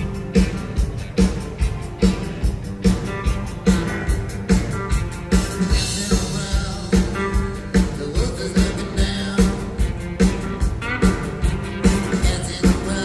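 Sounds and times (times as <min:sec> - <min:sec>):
bass guitar: 0:00.0 - 0:13.0
drums beating: 0:00.0 - 0:13.0
electric guitars: 0:00.0 - 0:13.0
person singing: 0:05.6 - 0:11.2, 0:11.8 - 0:13.0.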